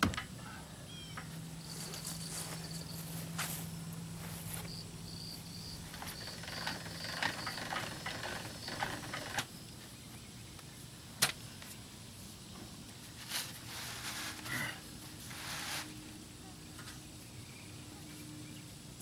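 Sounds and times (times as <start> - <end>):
insect chirping: 0.6 - 16.5
footsteps in grass: 1.6 - 4.8.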